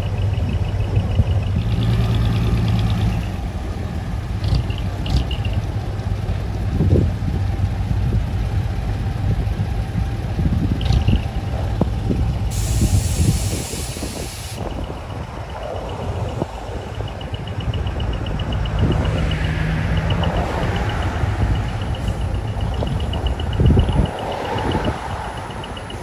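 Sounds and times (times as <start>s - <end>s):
truck diesel engines running: 0.0s - 26.0s
loud air brake hiss: 12.5s - 14.6s.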